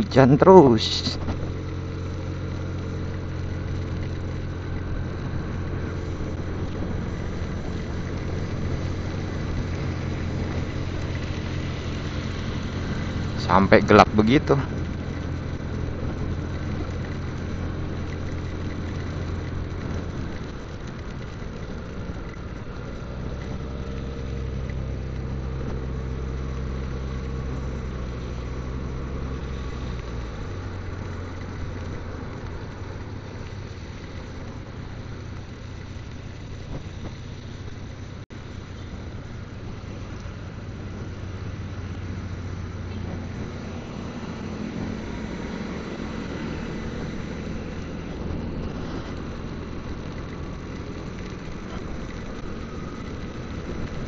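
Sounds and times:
motorcycle engine running: 0:00.0 - 0:54.0
rain hissing: 0:01.4 - 0:54.0.

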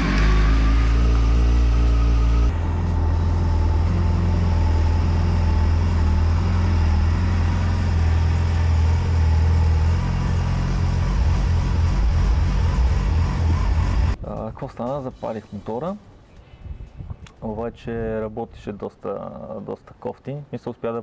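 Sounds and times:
motorcycle engine running: 0:00.0 - 0:14.2.

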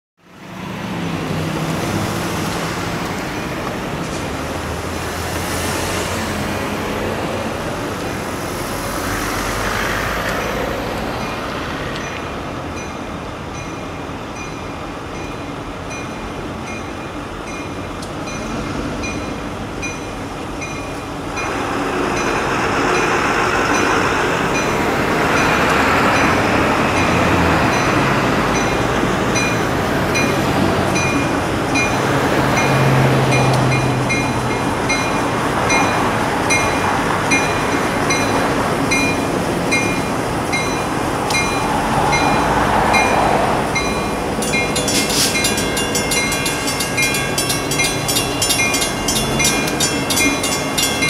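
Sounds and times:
diesel train rumbling: 0:00.2 - 0:51.0
train bell ringing: 0:11.2 - 0:30.4, 0:31.0 - 0:32.0, 0:32.6 - 0:51.0.

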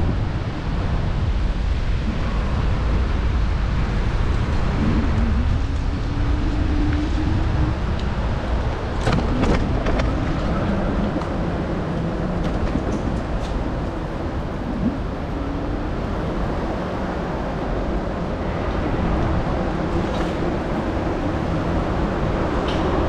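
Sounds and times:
wind rumble on microphone: 0:00.0 - 0:23.0.

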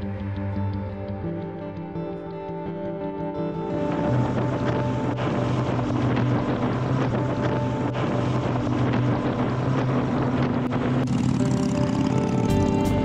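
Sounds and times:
motorcycle engine droning: 0:00.0 - 0:13.0
wind rushing over microphone: 0:03.7 - 0:13.0.

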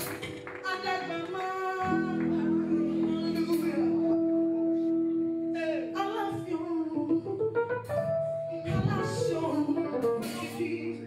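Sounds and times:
woman singing into a microphone: 0:00.6 - 0:04.3, 0:05.5 - 0:07.8, 0:08.6 - 0:11.0.

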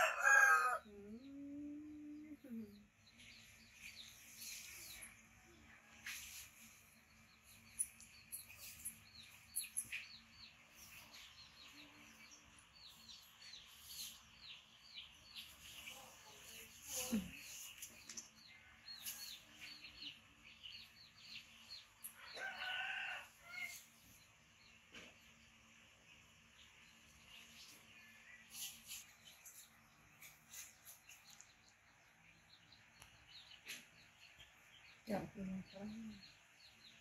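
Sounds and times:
birds chirping: 0:06.3 - 0:37.0.

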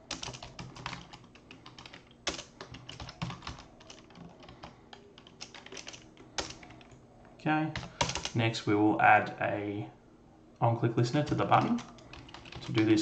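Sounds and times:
typing on a keyboard: 0:00.1 - 0:07.0, 0:07.8 - 0:08.4, 0:11.2 - 0:12.9.

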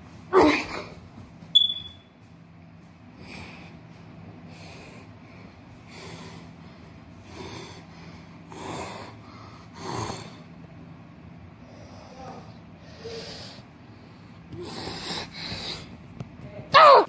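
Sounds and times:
steady low hum: 0:00.0 - 0:17.0
person breathing heavily: 0:03.1 - 0:10.6, 0:11.6 - 0:16.0.

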